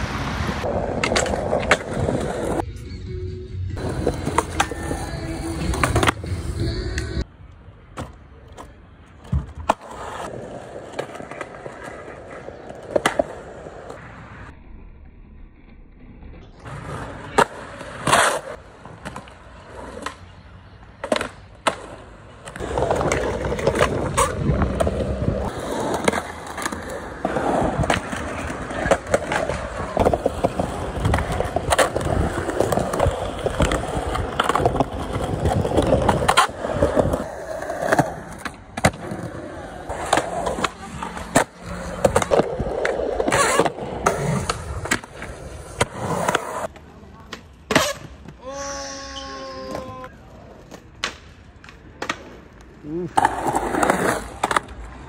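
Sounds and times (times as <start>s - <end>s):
skateboard wheels rolling on concrete: 0.0s - 55.0s
skateboard clacks: 0.6s - 2.6s.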